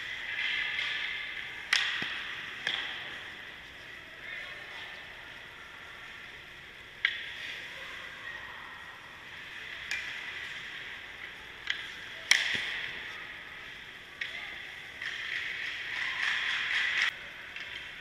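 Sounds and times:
puck and stick clacks: 0.0 - 3.7, 7.0 - 7.5, 9.5 - 14.4, 15.0 - 18.0.

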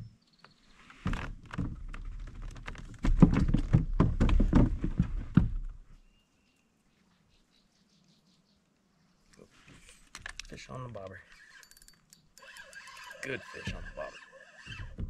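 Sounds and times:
thumps and taps on kayak hull: 1.0 - 5.8.

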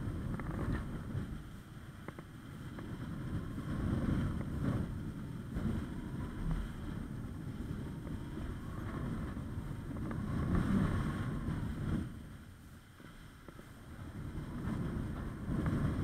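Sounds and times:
wind buffeting microphone: 0.0 - 16.0
faint ticks: 2.0 - 2.9.

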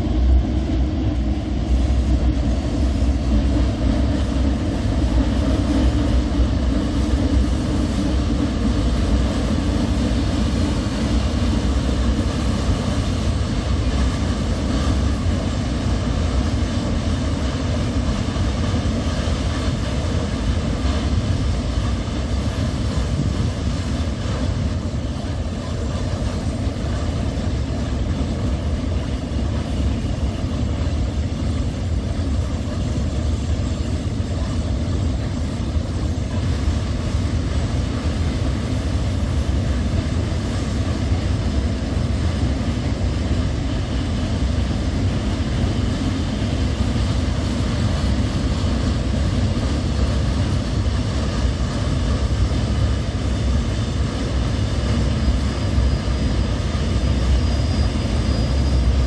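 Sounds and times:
train wheels rumbling on rails: 0.0 - 59.0
high wheel squeal: 41.2 - 59.0.

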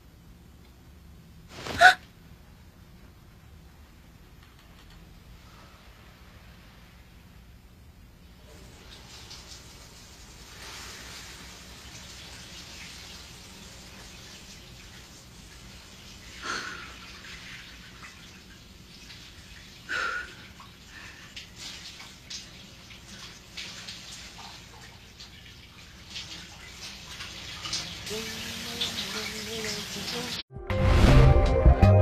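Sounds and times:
running water: 8.2 - 30.4.

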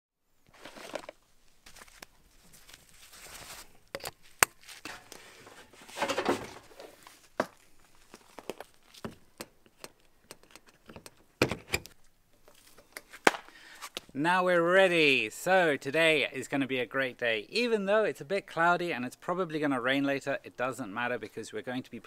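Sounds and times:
rustling and crinkling: 0.4 - 14.2.

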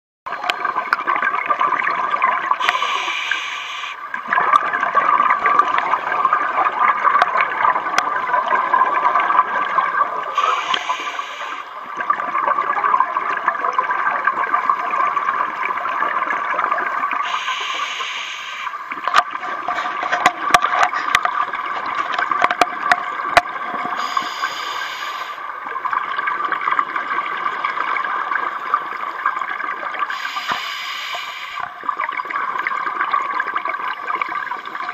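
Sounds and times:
regulator inhale hiss: 2.6 - 4.0, 10.4 - 11.7, 17.3 - 18.8, 24.0 - 25.4, 30.1 - 31.7.

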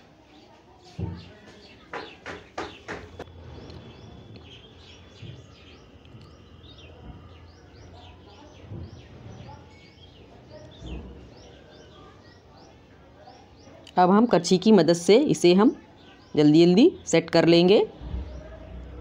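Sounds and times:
small bird chirping: 1.1 - 14.0
dull soft thumps of scraping: 18.0 - 19.0.

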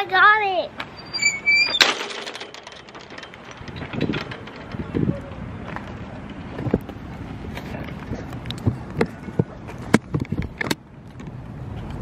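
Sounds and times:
outdoor background noise: 0.0 - 12.0
sharp clicks and knocks: 0.8 - 7.0.

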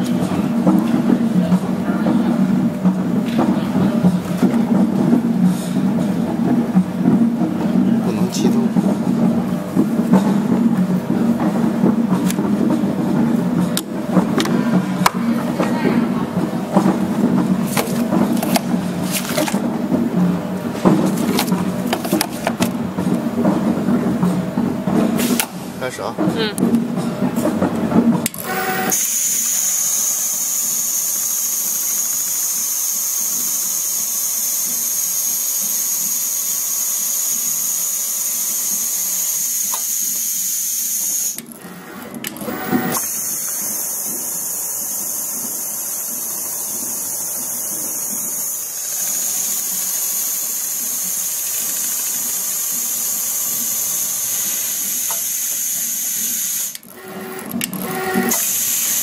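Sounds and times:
sewing machine whirring: 27.2 - 59.0.

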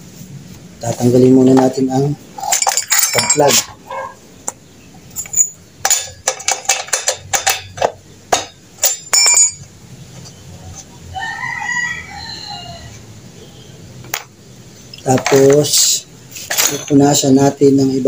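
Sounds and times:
metal wrench clinks and knocks: 2.4 - 3.8, 5.1 - 9.7, 16.4 - 17.2
rooster crowing: 11.0 - 13.7.

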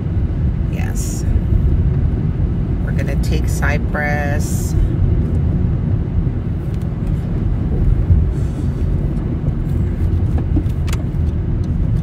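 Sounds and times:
car cabin road and engine rumble: 0.0 - 12.0.

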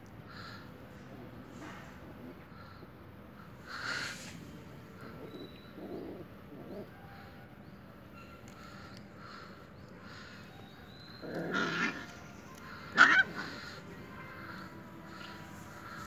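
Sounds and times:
puppy growling: 5.0 - 7.0, 11.0 - 13.8
puppy yelping: 10.6 - 13.8.

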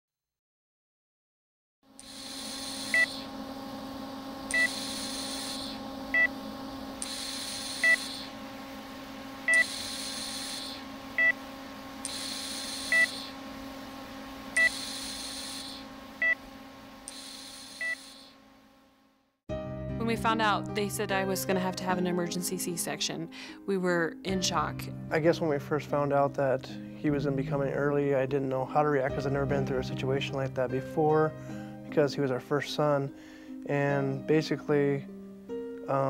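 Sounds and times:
rhythmic hiss: 1.9 - 18.4
electrical hum: 1.9 - 19.3
heart monitor beeping: 2.0 - 3.4, 4.4 - 6.4, 7.0 - 8.4, 9.4 - 11.4, 12.0 - 13.5, 14.5 - 16.4, 17.1 - 18.3.

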